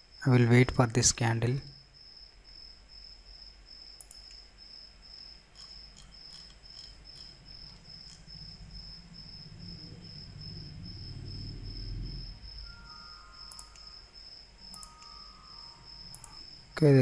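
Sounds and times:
cricket chirping: 0.0 - 17.0
soft clicks: 4.0 - 4.5, 13.5 - 13.9, 14.7 - 15.2, 16.1 - 16.4.

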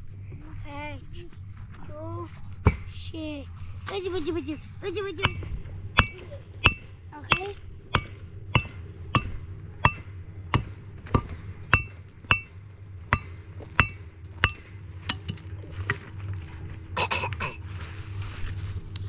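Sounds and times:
hammer striking metal: 5.2 - 15.4.

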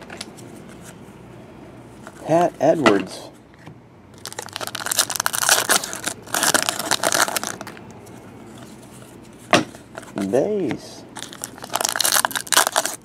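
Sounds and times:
foil wrapper tearing and crinkling: 4.2 - 7.7, 11.2 - 13.0.

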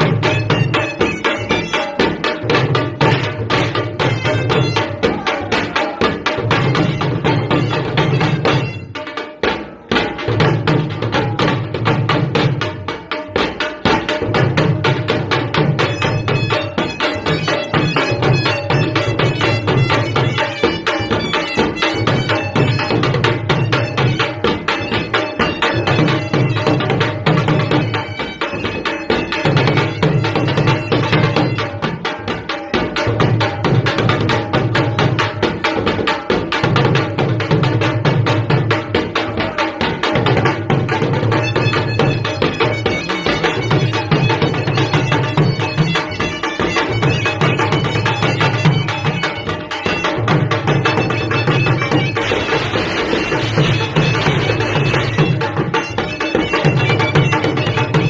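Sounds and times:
shawm playing a melody: 0.0 - 58.0
drum beaten in fast strokes: 33.2 - 58.0.

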